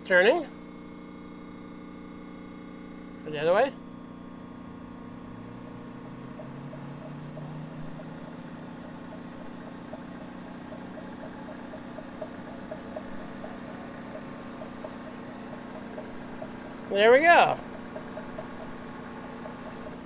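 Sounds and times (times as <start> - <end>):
phase converter hum: 0.0 - 20.0
electric motor spinning up: 1.1 - 20.0
light ticking: 4.2 - 20.0.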